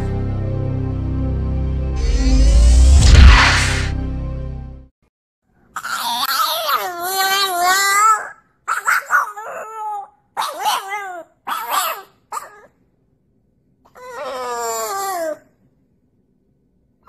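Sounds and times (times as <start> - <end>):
dog howling: 5.8 - 12.0.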